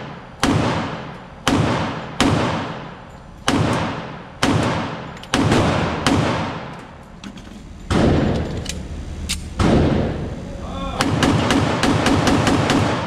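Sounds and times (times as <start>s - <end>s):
loud gunshots echoing: 0.0s - 6.8s, 7.9s - 8.4s, 9.6s - 10.3s, 11.0s - 13.0s.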